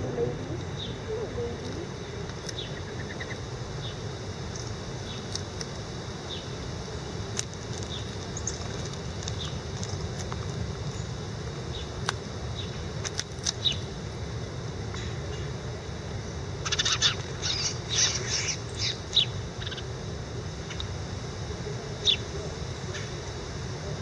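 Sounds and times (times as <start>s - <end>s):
sparrows chirping: 0.0s - 5.3s, 7.8s - 8.7s, 13.6s - 13.9s, 16.2s - 19.9s, 22.0s - 22.3s
low background rumble: 0.0s - 24.0s.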